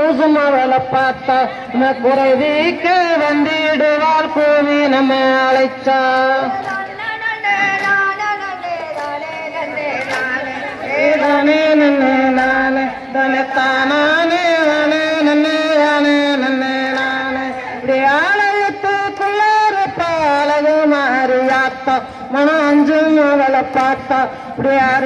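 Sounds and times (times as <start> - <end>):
folk song sung in high voices: 0.0 - 25.0.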